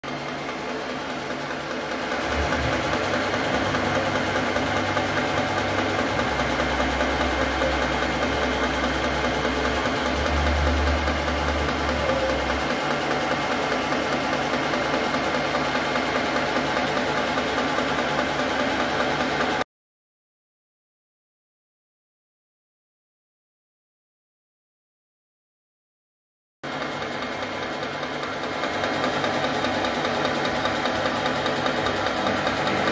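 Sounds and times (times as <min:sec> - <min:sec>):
milling machine whine: 0:00.0 - 0:19.6, 0:26.7 - 0:32.9
deep hum: 0:02.2 - 0:13.0.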